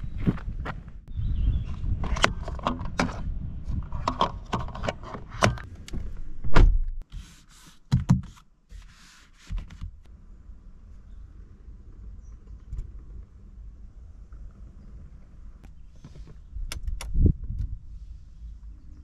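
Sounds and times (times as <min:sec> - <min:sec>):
handling clicks and knocks: 0:02.0 - 0:06.3.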